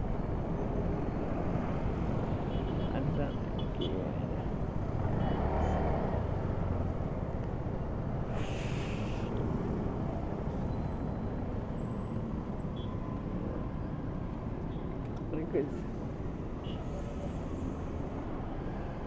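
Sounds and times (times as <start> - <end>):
hiss: 8.3 - 9.3.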